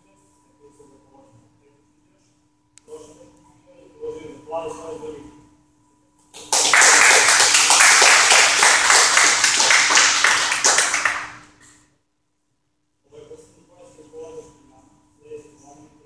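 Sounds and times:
people applauding: 6.4s - 11.6s.

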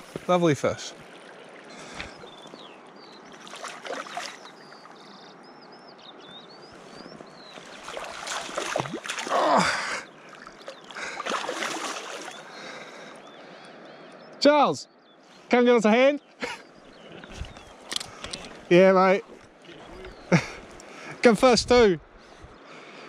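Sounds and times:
water splashing: 0.0s - 5.1s, 7.4s - 12.9s
river water running: 0.0s - 23.0s.

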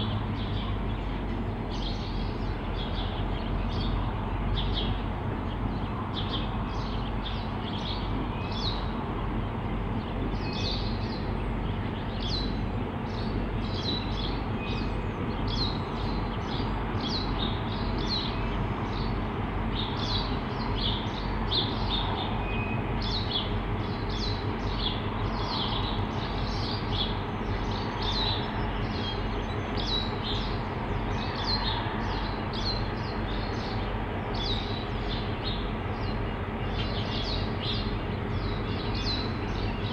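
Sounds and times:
diesel locomotives rumbling: 0.0s - 39.9s
small birds chirping: 0.0s - 39.9s.

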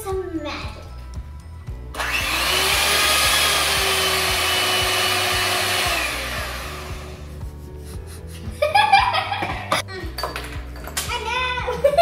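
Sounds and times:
electric hand mixer whirring: 1.9s - 7.3s.

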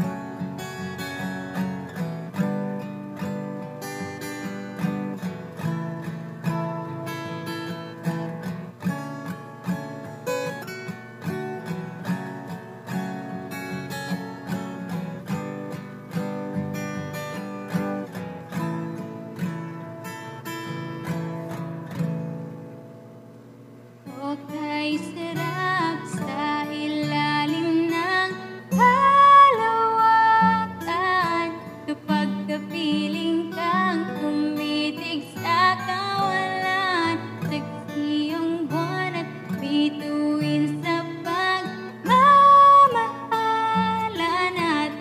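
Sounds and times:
acoustic guitar strumming: 0.0s - 45.0s
woman singing: 24.1s - 45.0s.

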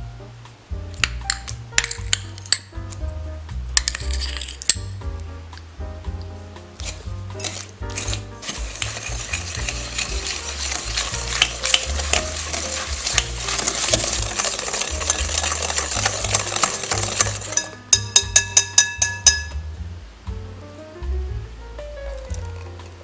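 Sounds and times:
whisk clicking against bowl: 6.8s - 19.6s
whisk scraping glass bowl: 6.8s - 19.6s.

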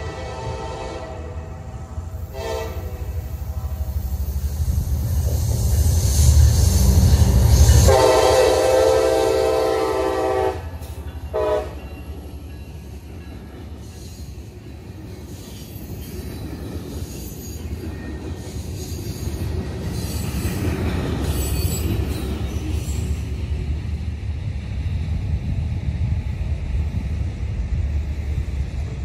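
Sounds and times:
locomotive horn: 0.0s - 1.7s, 2.3s - 3.3s, 7.8s - 11.9s
train rumble and wheel clatter: 0.0s - 29.0s
high wheel squeal: 17.0s - 23.3s.

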